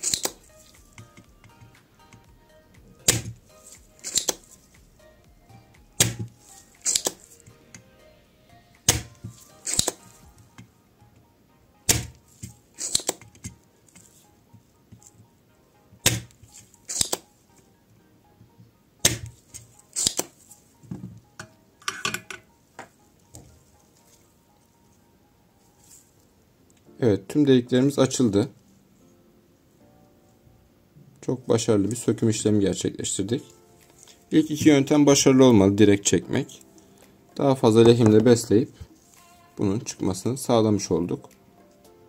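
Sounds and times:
desoldering pump snapping: 0.0 - 2.2, 3.0 - 4.5, 6.0 - 7.8, 8.9 - 10.7, 11.9 - 13.6, 16.0 - 17.2, 19.0 - 20.4
desoldering pump clicking: 6.0 - 7.8, 16.0 - 17.2.

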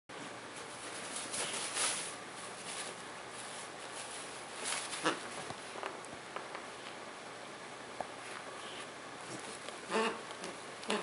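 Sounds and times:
paper rustling and crinkling: 0.5 - 5.8.

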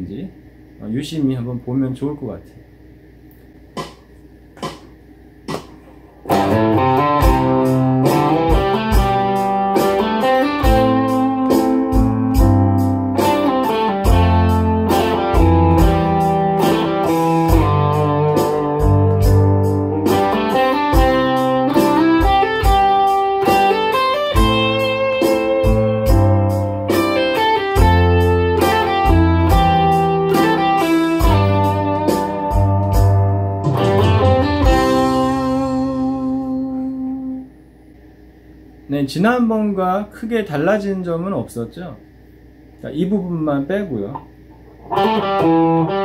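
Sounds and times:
backing track with bass and drums: 3.7 - 37.0
electric guitar melody: 6.2 - 37.6, 44.6 - 46.0.

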